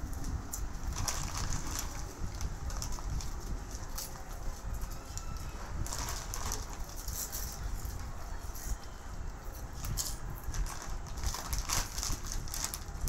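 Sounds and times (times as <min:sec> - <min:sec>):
chip bags crinkling: 0:00.2 - 0:08.0, 0:09.5 - 0:13.0.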